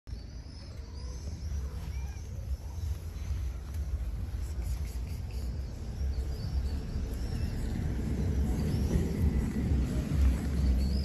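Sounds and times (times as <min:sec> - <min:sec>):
faint high chirps: 0:00.1 - 0:11.0
low rumble on microphone: 0:01.4 - 0:11.0.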